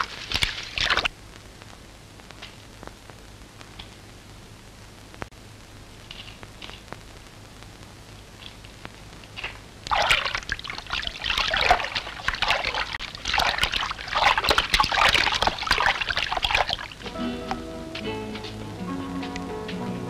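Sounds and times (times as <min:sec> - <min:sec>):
water splashing and sloshing: 0:00.0 - 0:01.1, 0:09.4 - 0:17.1
background music: 0:17.0 - 0:20.0.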